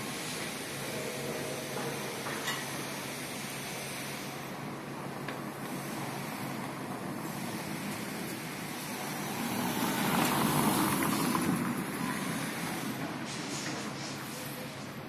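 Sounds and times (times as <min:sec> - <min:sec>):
outdoor traffic noise: 0:00.0 - 0:15.0
vehicle passing: 0:04.8 - 0:13.2.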